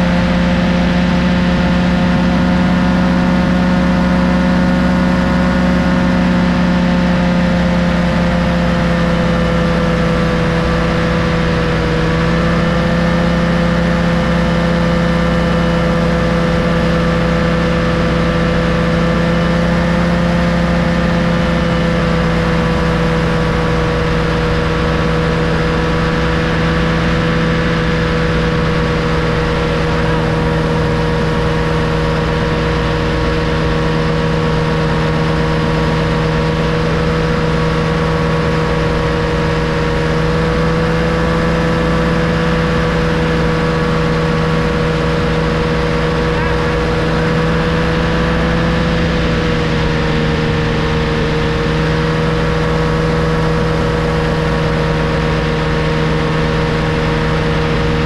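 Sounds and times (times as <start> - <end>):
paramotor engine drone: 0.0 - 58.0.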